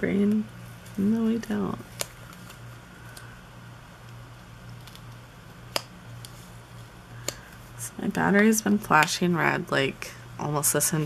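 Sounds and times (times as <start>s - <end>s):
low electrical hum: 0.0s - 11.0s
paper stickers handled: 0.1s - 3.4s, 4.0s - 7.8s.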